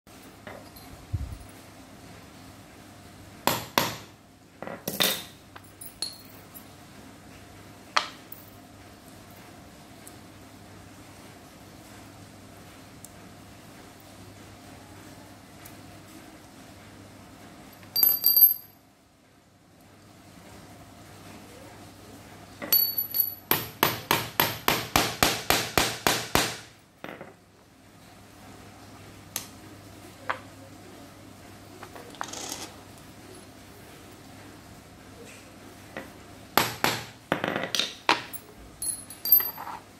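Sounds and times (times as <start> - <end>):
metal tools knocking and clinking: 4.8 - 6.6, 17.8 - 18.7, 22.6 - 23.7, 37.4 - 39.8
ringing metallic clink: 18.0 - 18.7, 22.7 - 23.5.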